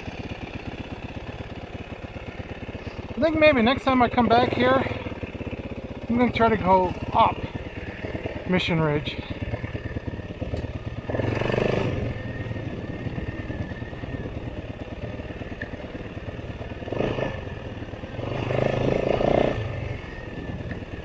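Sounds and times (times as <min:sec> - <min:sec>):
dirt bike engine revving: 0:02.8 - 0:14.5, 0:16.7 - 0:20.6.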